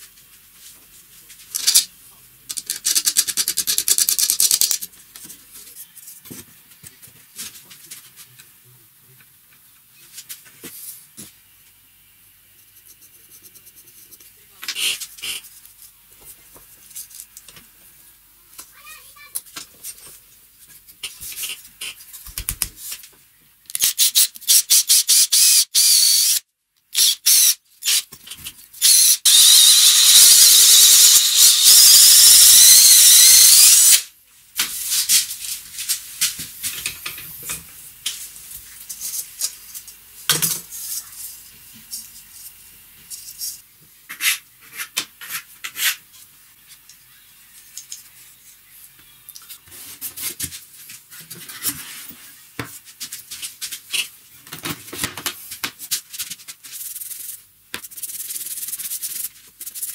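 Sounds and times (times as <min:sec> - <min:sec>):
electric drill boring into wood: 0:24.8 - 0:26.4, 0:27.0 - 0:28.0, 0:28.8 - 0:34.1.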